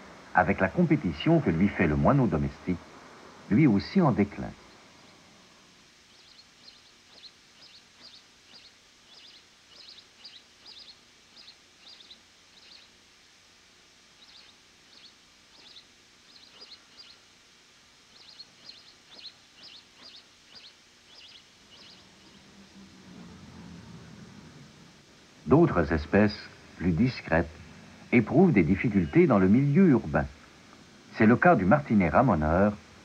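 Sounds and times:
sparrow chirping: 0:06.0 - 0:22.6.

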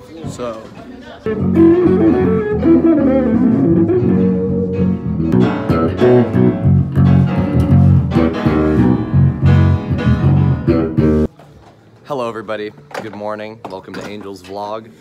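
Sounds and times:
bass guitar line: 0:01.2 - 0:11.3
electric guitar playing: 0:01.2 - 0:11.3.

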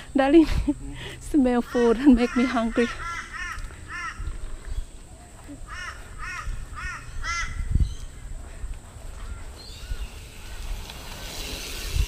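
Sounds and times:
footsteps on a path: 0:01.0 - 0:11.3
crow cawing: 0:01.7 - 0:04.4, 0:05.6 - 0:07.7.

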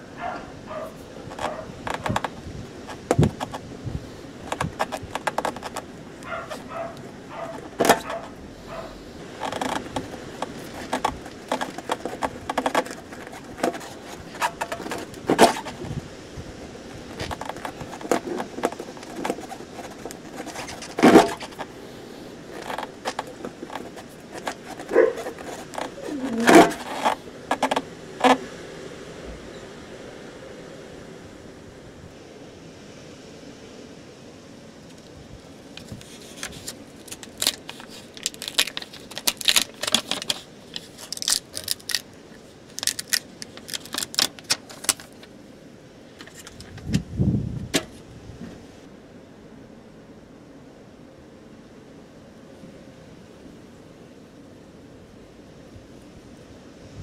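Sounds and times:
screwdriver scraping and clicking: 0:01.2 - 0:03.7, 0:04.4 - 0:08.4, 0:09.3 - 0:16.0, 0:16.9 - 0:21.7, 0:22.5 - 0:28.4, 0:35.8 - 0:42.0, 0:42.8 - 0:45.3.

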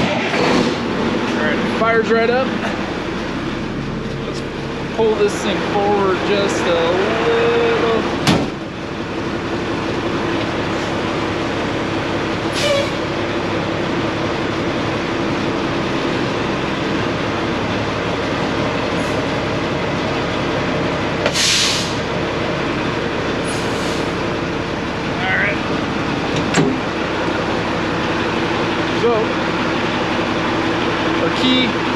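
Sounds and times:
diesel engine running: 0:00.0 - 0:31.9
short air hisses: 0:21.3 - 0:22.0.

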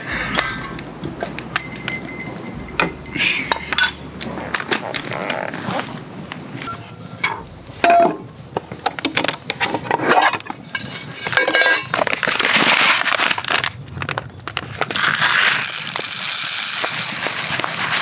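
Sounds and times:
metallic ringing: 0:01.3 - 0:04.1
metal cookware clinking on wooden table: 0:10.7 - 0:12.0
dry rice poured into metal pot: 0:15.6 - 0:18.0.

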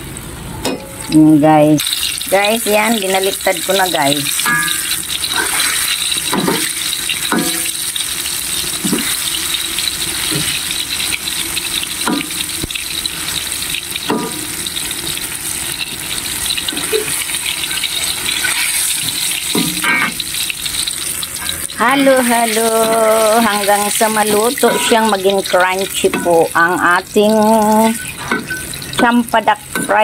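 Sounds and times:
fritters sizzling in hot oil: 0:00.0 - 0:30.0
metal ladle clinking: 0:04.4 - 0:05.4, 0:24.3 - 0:26.6, 0:27.9 - 0:29.1.

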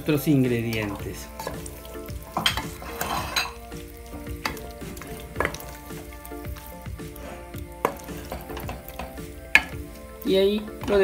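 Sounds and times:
onion and tomato sizzling: 0:00.0 - 0:11.0
wooden spoon stirring in pot: 0:00.0 - 0:11.0
spoon knocking against pot: 0:02.3 - 0:03.6, 0:04.3 - 0:05.8, 0:07.8 - 0:09.9.

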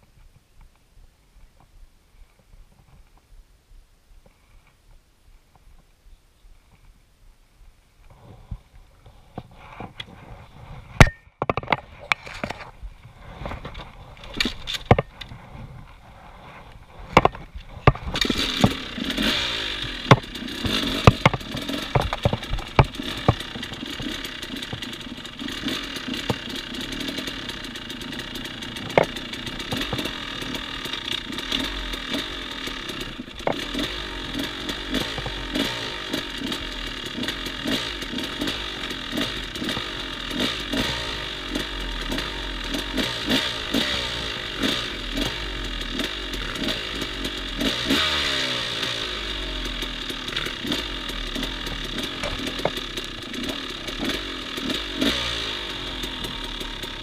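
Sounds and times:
dirt bike engine running: 0:10.2 - 0:57.0
clatter: 0:16.4 - 0:57.0.

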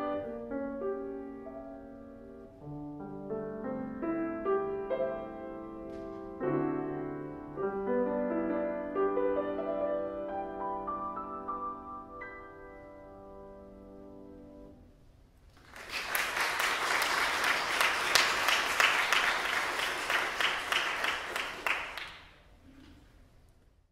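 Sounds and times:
audience applause: 0:15.6 - 0:22.4.

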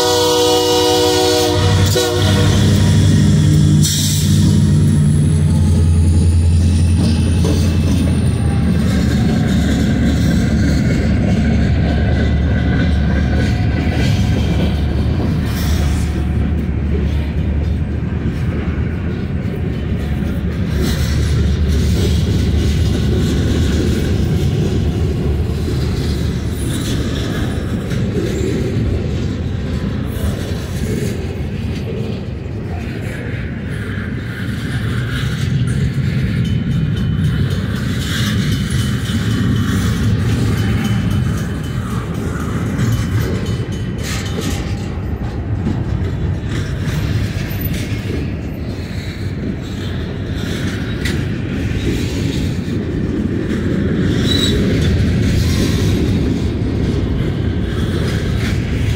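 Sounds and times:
freight cars rolling on rails: 0:00.0 - 0:58.9
locomotive engine rumble: 0:00.0 - 0:58.9
wheels clacking over rail joints: 0:00.0 - 0:58.9
crossing bell ringing: 0:36.4 - 0:45.4.

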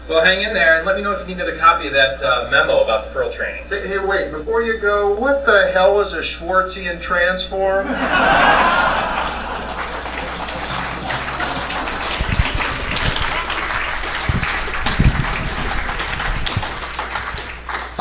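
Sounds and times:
audience applauding: 0:07.9 - 0:18.0
low thumps: 0:12.2 - 0:16.9.

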